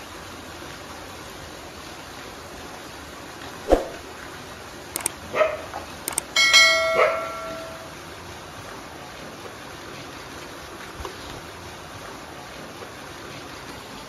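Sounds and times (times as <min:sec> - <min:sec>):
bark-like yelps: 0:05.3 - 0:05.7
mouse clicks: 0:06.1 - 0:06.3
ringing bell chime: 0:06.4 - 0:07.9.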